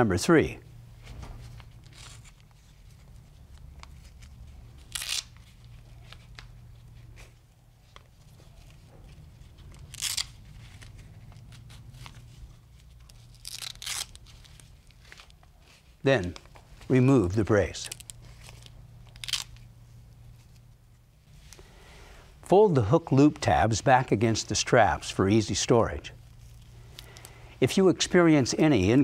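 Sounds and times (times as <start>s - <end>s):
hook-and-loop strap ripping: 3.4s - 6.5s, 7.9s - 15.5s, 17.8s - 19.7s.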